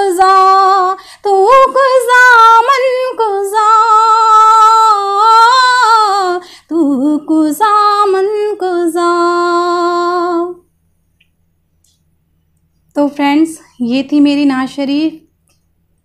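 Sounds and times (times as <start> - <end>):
woman singing unaccompanied: 0.0 - 10.6.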